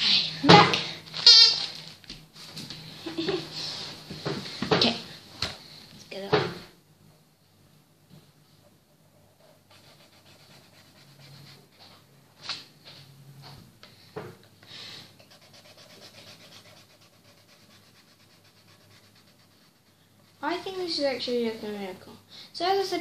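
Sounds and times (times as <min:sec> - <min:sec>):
marker scratching on paper: 0:09.2 - 0:12.0, 0:15.2 - 0:19.9.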